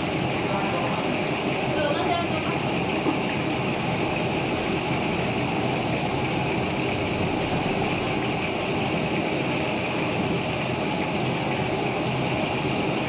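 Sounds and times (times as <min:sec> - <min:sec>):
sauce bubbling and crackling: 0:02.6 - 0:13.0.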